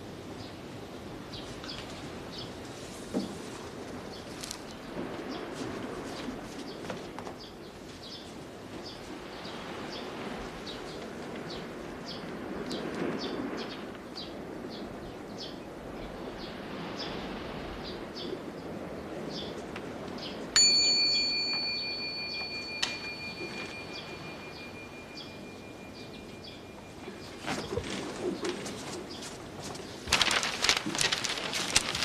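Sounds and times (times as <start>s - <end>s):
steady background hiss: 0.0s - 32.0s
small bell ringing: 20.6s - 27.4s
small birds chirping: 21.8s - 30.1s.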